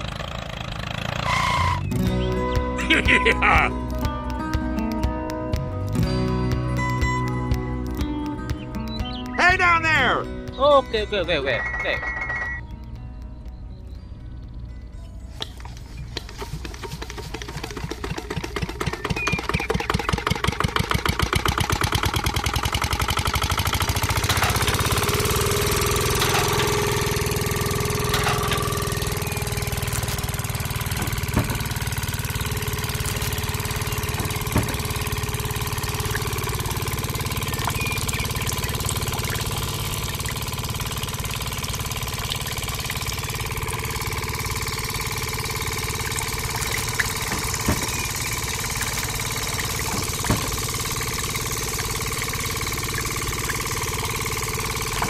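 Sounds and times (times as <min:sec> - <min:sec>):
small engine running: 0:00.0 - 0:12.6, 0:15.4 - 0:55.0
sharp clicks: 0:03.6 - 0:10.0.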